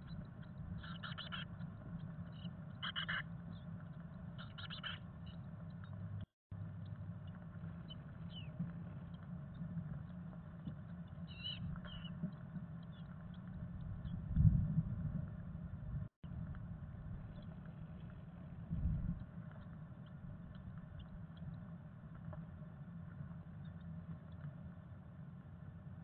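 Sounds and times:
faint high peeps: 0.0 - 1.5, 2.3 - 3.2
steady low hum: 0.0 - 26.0.

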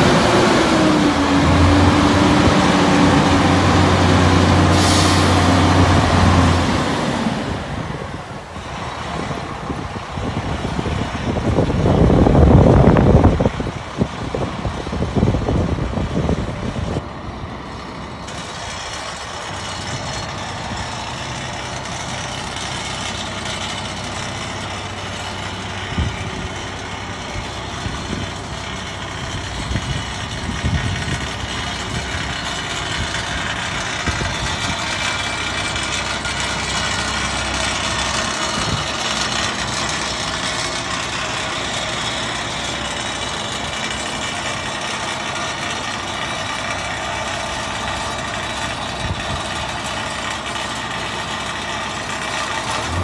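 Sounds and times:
diesel engine running: 0.0 - 53.0
loud rush of noise: 0.0 - 53.0
air hiss: 4.6 - 5.6.

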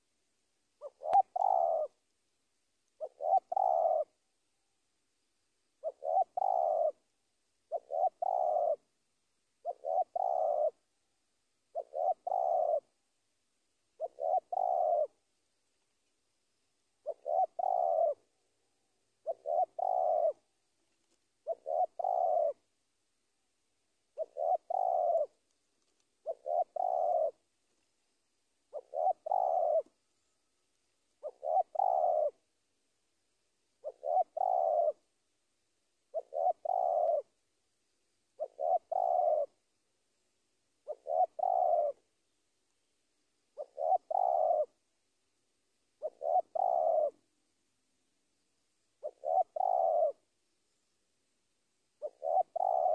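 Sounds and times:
dove cooing: 0.7 - 2.0, 2.9 - 4.3, 5.8 - 9.0, 9.6 - 11.0, 11.6 - 13.0, 13.8 - 15.3, 16.9 - 18.4, 19.1 - 22.7, 24.1 - 27.8, 28.6 - 32.5, 33.8 - 35.1, 36.0 - 37.4, 38.3 - 39.6, 40.8 - 42.3, 43.5 - 44.9, 45.9 - 47.3, 49.0 - 50.4, 51.9 - 52.9.

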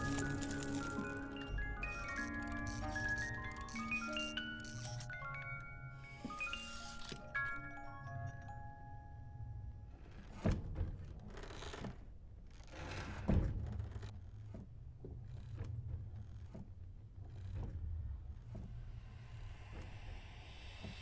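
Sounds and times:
low rumbling drone: 18.2 - 21.0.

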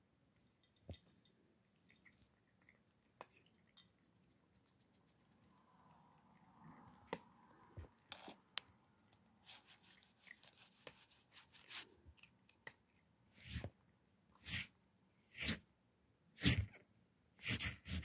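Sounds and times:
kitten crunching kibble: 1.7 - 5.4, 8.0 - 13.6.

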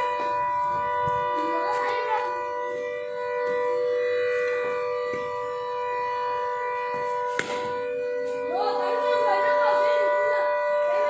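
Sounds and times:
musical drone of held notes: 0.0 - 11.0
cricket bat striking ball: 7.3 - 7.7.

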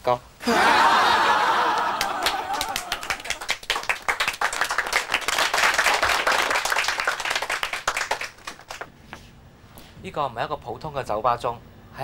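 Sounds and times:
group clapping: 0.5 - 8.9.

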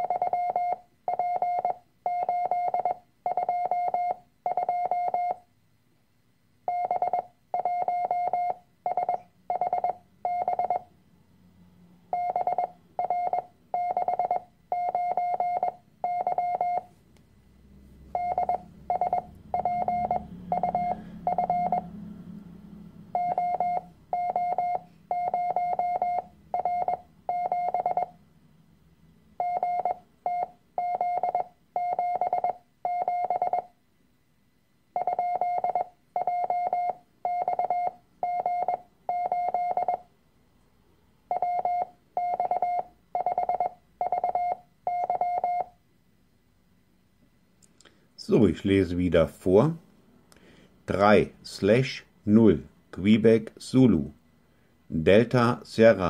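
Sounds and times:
morse code tone: 0.0 - 5.4, 6.7 - 10.9, 12.1 - 16.9, 18.1 - 22.1, 23.1 - 28.2, 29.4 - 33.7, 35.0 - 40.1, 41.3 - 45.8.

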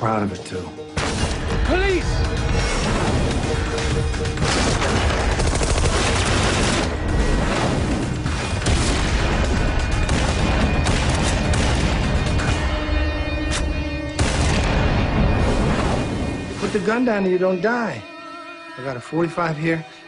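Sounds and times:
music: 0.0 - 20.0
rapid gunfire: 2.5 - 12.6, 14.2 - 15.1.

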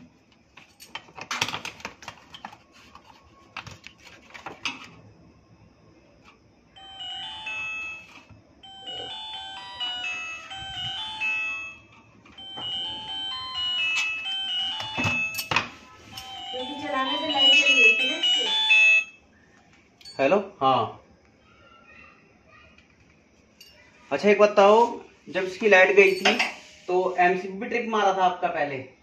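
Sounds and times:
mobile phone ringtone: 6.8 - 19.2.

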